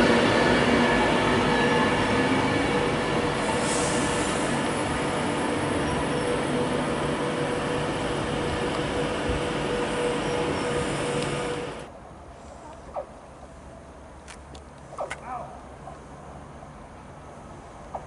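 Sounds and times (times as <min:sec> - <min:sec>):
train wheels rumbling: 0:00.0 - 0:11.9.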